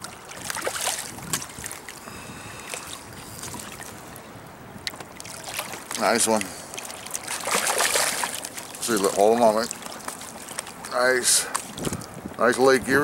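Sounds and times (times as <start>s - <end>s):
wind on microphone: 0.0s - 4.8s, 11.6s - 13.0s
water lapping around boat: 0.0s - 13.0s
fish splashing at surface: 0.3s - 3.9s, 4.9s - 12.0s.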